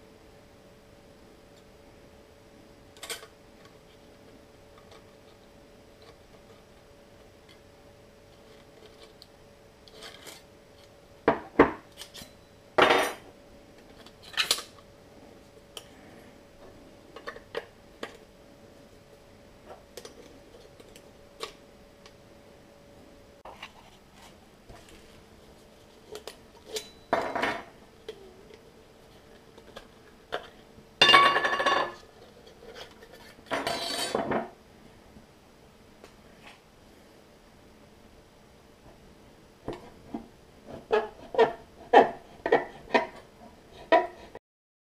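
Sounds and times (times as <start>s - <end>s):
metal scrapes: 32.6s - 34.2s.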